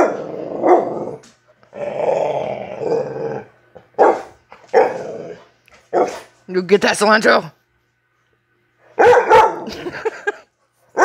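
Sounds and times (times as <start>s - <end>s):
puppy growling: 0.0s - 5.6s
puppy barking sharply: 4.0s - 4.9s, 6.0s - 6.2s, 9.0s - 9.7s.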